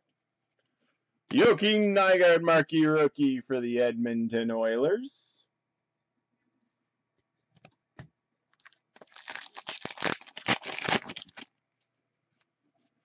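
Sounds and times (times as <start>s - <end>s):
card pack wrapper tearing and crinkling: 8.6s - 11.5s.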